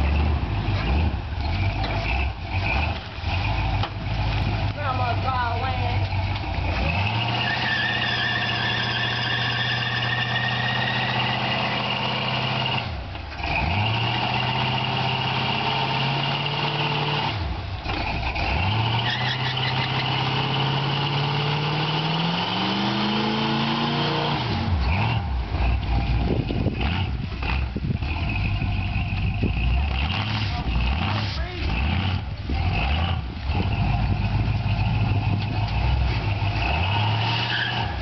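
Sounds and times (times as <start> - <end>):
car engine revving high: 0.0 - 38.0
tyres squealing: 0.1 - 11.9, 18.8 - 20.6.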